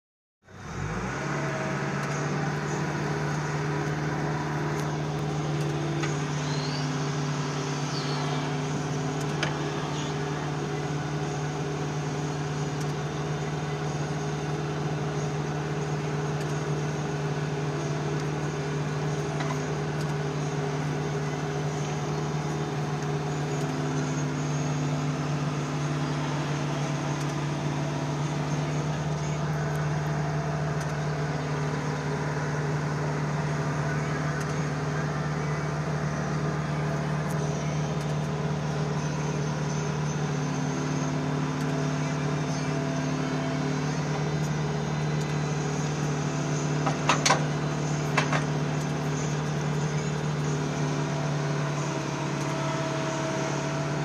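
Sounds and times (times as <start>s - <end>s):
digger diesel engine humming: 0.4s - 54.0s.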